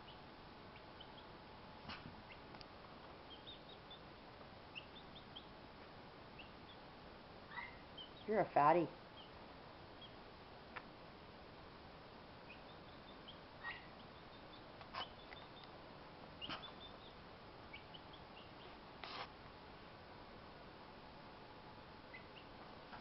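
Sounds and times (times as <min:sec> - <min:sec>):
chicks peeping: 0:00.0 - 0:01.3, 0:03.2 - 0:04.1, 0:04.7 - 0:05.6, 0:06.3 - 0:06.8, 0:07.5 - 0:10.2, 0:12.4 - 0:15.7, 0:16.4 - 0:18.8, 0:22.1 - 0:22.6.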